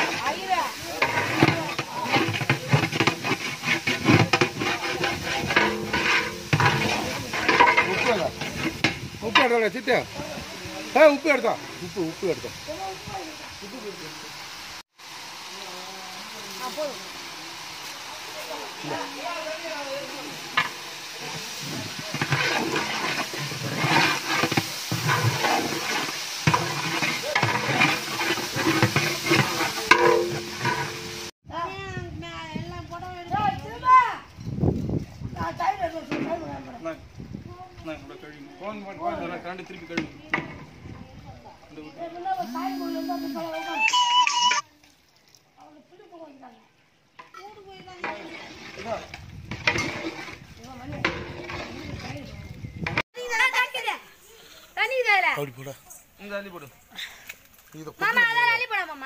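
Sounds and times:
wet rice sloshing: 0.0 - 8.8
ladle scraping pot: 0.0 - 9.5, 20.6 - 31.3, 49.5 - 52.1
steady hiss: 0.0 - 31.3, 53.3 - 59.0
onions sizzling in oil: 0.0 - 31.4, 41.7 - 44.2, 52.9 - 59.0
ladle clanking against pot: 1.0 - 9.5, 26.5 - 31.2.

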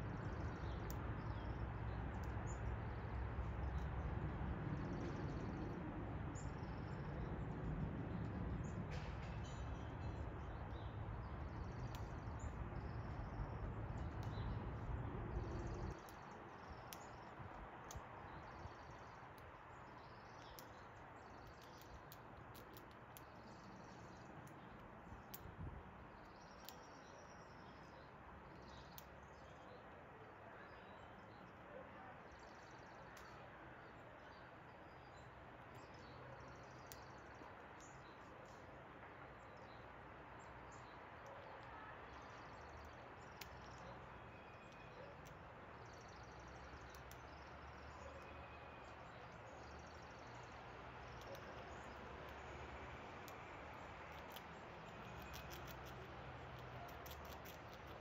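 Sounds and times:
low background noise: 0.0 - 58.0
small clicks: 21.4 - 23.8, 49.9 - 52.5, 53.2 - 58.0
faint bird chirps: 26.2 - 52.6, 53.3 - 58.0.

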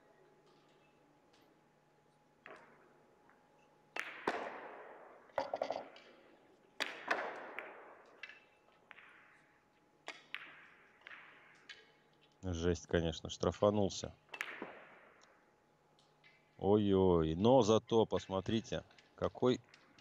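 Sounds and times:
billiard balls clacking: 5.3 - 7.6.

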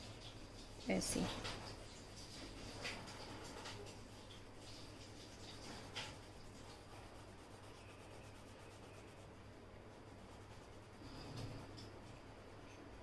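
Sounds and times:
colored pencil scratching on paper: 4.6 - 13.0.

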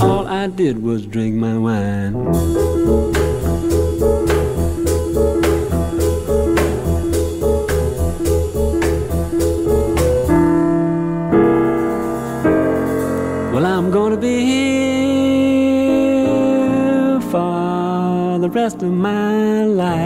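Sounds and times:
sustained held notes: 2.2 - 15.8
jazz with piano bass and drums: 2.2 - 20.0.

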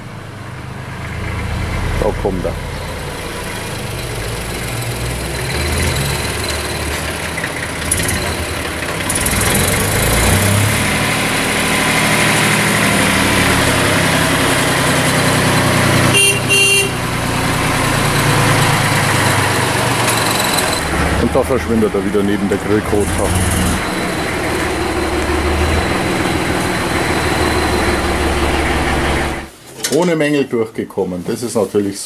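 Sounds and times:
tractor engine running: 0.0 - 29.5
tractor horn tooting: 16.0 - 17.4.

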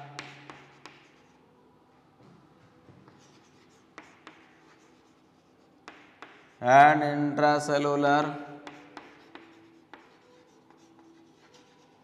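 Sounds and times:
chalk tapping on board: 0.0 - 1.3, 3.0 - 6.6, 8.6 - 12.0
chalk scratching on chalkboard: 0.0 - 1.4, 3.0 - 6.6, 8.6 - 12.0.

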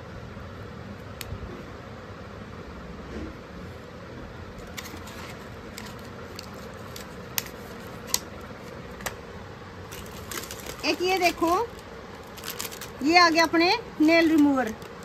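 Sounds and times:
room hum: 0.0 - 15.0.

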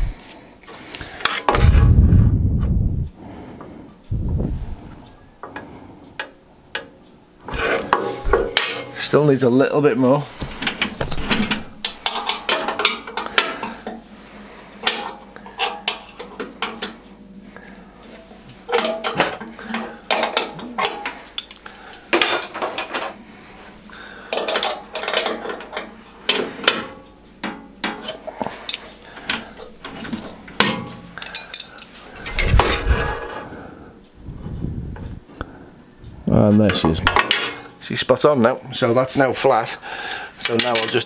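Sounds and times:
spanner clicking and clinking: 20.1 - 23.0, 30.6 - 32.6.

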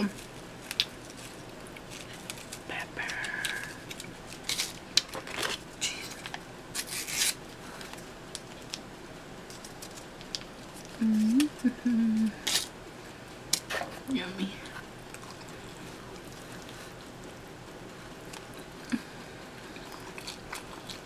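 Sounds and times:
paper packets tearing and rustling: 0.0 - 8.8, 9.5 - 11.5
person humming: 11.0 - 12.5.

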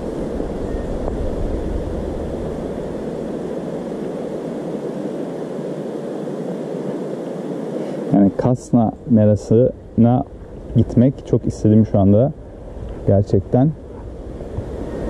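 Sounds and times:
deep rumble: 0.0 - 4.8
wind rushing over microphone: 0.0 - 15.0.

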